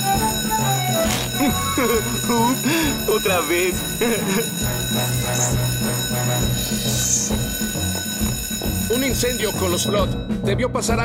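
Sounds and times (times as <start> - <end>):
fire alarm bell ringing: 0.0 - 10.5
background music: 0.0 - 11.0.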